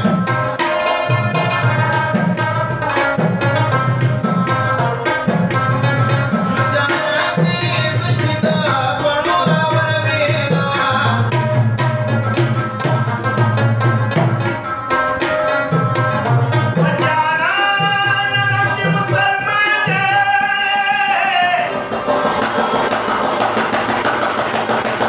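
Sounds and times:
plucked rubab: 0.0 - 25.0
tabla strokes: 0.0 - 25.0
man singing long held notes: 17.0 - 21.8.

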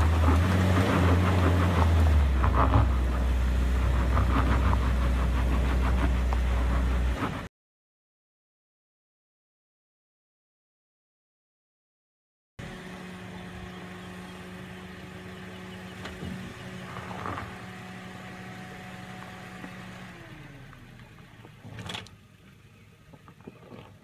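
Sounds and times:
engine running at low revs: 0.0 - 7.5, 12.6 - 24.0.

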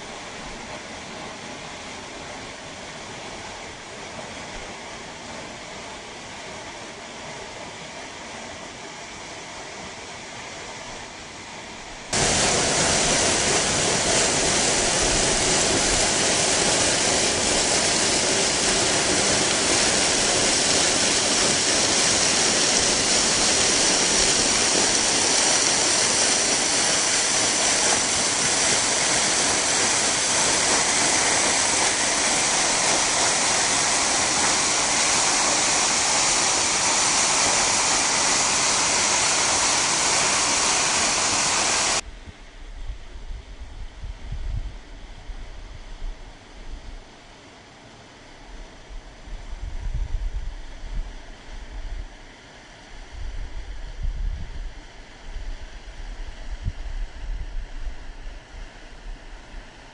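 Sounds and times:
waterfall rushing: 12.2 - 42.0.

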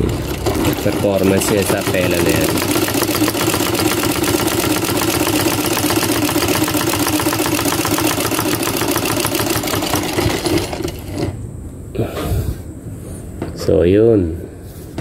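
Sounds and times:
sewing machine stitching: 0.0 - 11.4.

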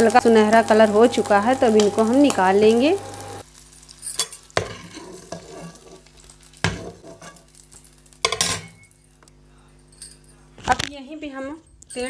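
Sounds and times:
faint oil sizzle: 0.0 - 9.7
metal spoon knocking and scraping pan: 4.6 - 5.8.

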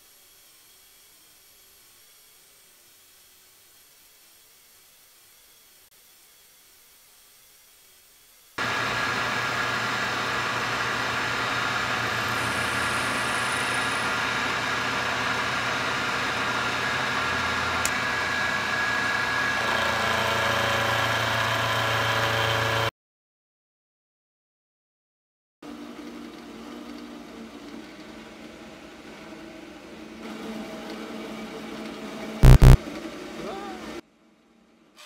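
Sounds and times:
milling machine cutting metal: 8.6 - 22.9.

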